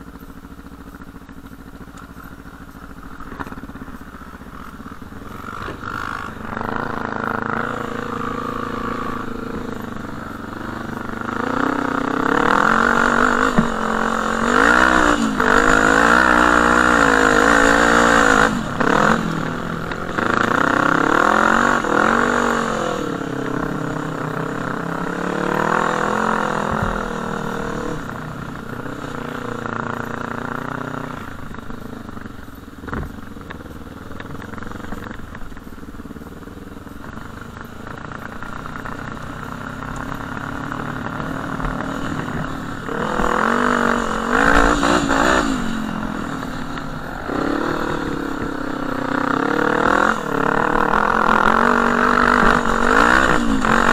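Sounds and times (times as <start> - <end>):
quad bike engine revving: 0.0 - 36.2, 36.9 - 53.9.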